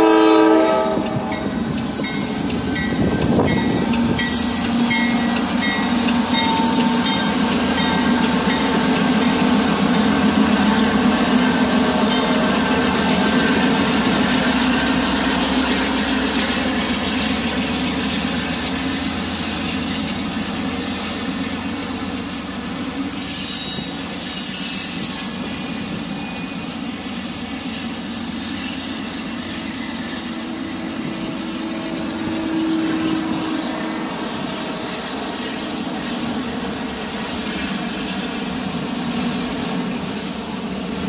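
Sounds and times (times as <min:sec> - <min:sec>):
freight train wheels rumbling: 0:00.0 - 0:41.0
high-pitched wheel squeal: 0:06.1 - 0:07.4, 0:22.2 - 0:26.7.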